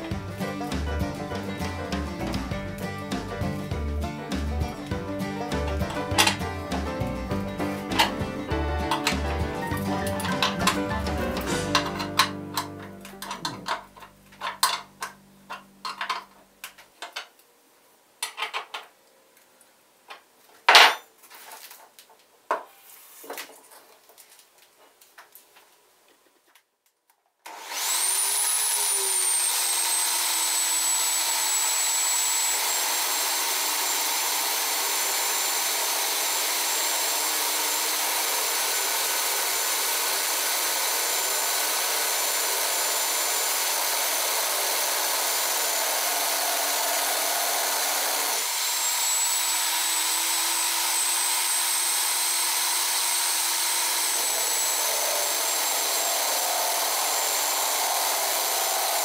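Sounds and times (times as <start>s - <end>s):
electric drill whining: 27.5s - 59.0s
drill bit grinding glass: 27.8s - 59.0s.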